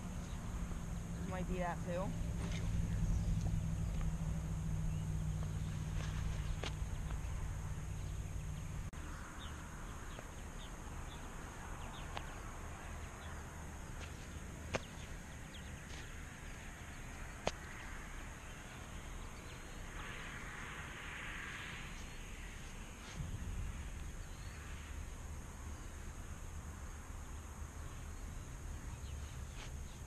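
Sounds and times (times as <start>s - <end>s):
low rumble: 0.0s - 10.1s, 22.9s - 26.4s.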